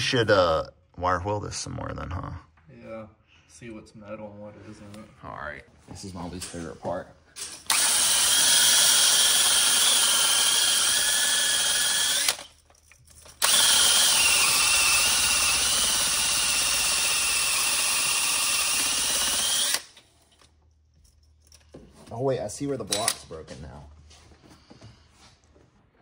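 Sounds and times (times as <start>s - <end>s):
drill wire brush scrubbing metal: 7.7s - 12.5s, 13.4s - 19.8s.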